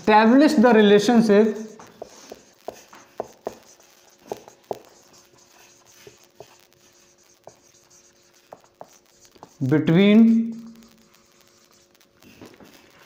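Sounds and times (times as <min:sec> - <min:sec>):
marker pen writing on whiteboard: 0:00.0 - 0:13.0
marker tip tapping board: 0:01.8 - 0:05.3, 0:08.3 - 0:09.6.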